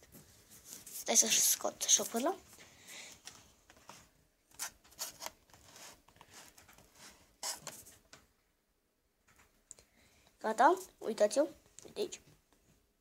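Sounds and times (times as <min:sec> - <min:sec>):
soft rubbing: 0:00.0 - 0:02.8, 0:03.8 - 0:08.0
plastic jar lid scraping and clicking: 0:04.5 - 0:07.8.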